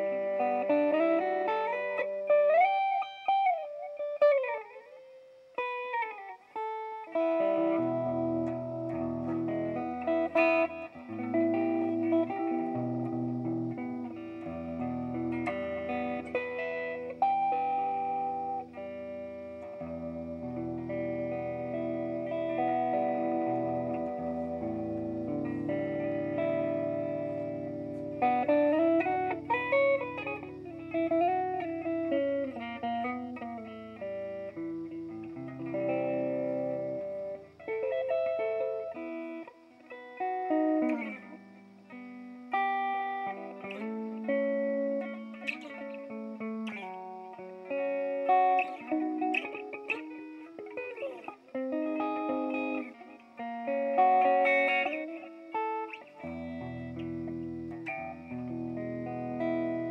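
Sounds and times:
electric guitar with reverse echoes: 0.0s - 59.9s.

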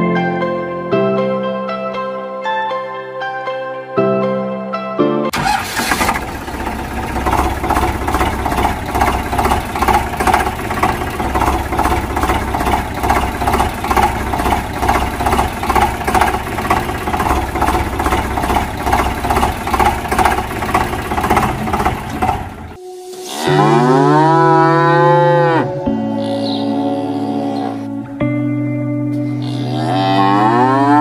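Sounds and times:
tractor engine idling: 5.3s - 22.8s.

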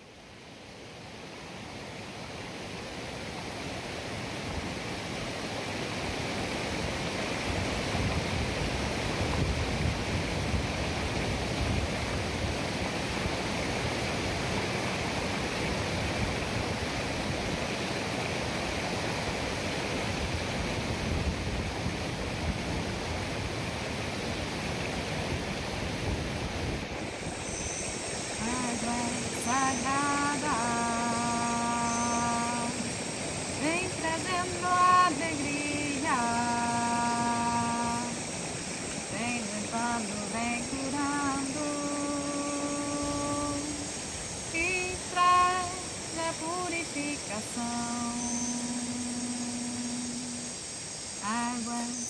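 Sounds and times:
water rushing over rocks: 0.2s - 51.3s.

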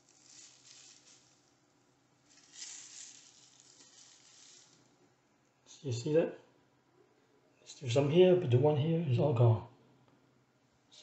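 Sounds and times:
plastic wrap crinkling: 0.0s - 5.0s.

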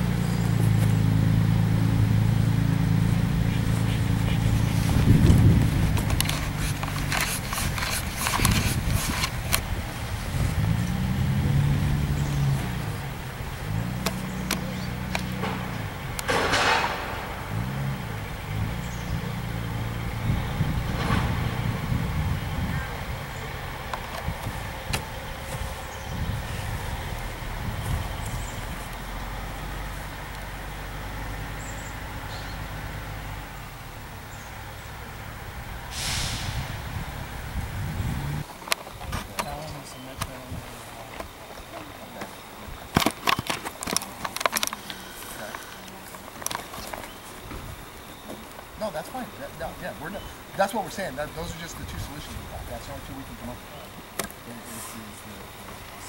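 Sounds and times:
engine revving: 0.0s - 38.5s
sharp knocks and clanks: 13.9s - 21.9s.

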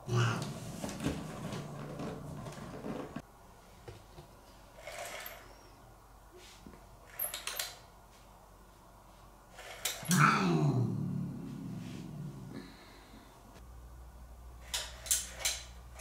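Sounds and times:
cat growling low: 0.0s - 0.7s, 10.0s - 13.1s
soft rustles: 0.4s - 5.2s.

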